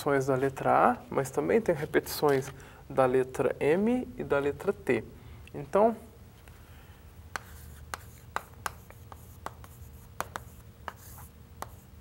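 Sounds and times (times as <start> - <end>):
chalk tapping and scraping: 7.3 - 12.0.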